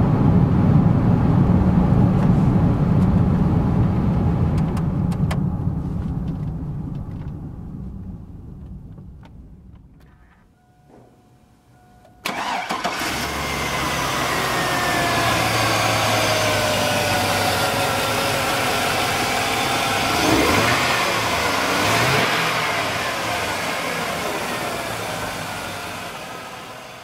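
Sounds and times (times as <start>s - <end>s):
truck engine idling with whine: 0.0s - 27.0s
truck engine revving: 12.3s - 27.0s.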